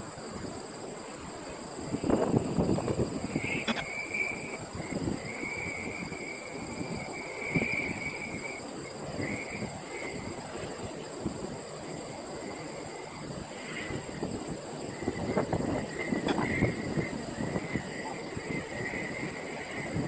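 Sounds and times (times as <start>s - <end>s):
gusty wind buffeting microphone: 0.0s - 20.0s
steady high-pitched whine: 0.0s - 20.0s.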